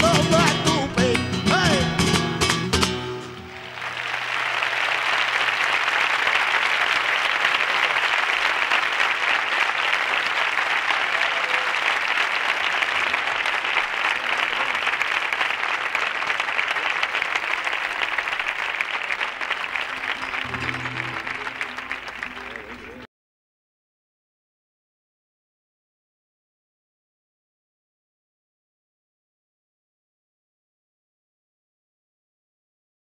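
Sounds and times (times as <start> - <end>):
audience applauding: 0.0 - 1.1, 3.3 - 23.1
flamenco song with guitar: 0.0 - 3.9, 20.0 - 23.0.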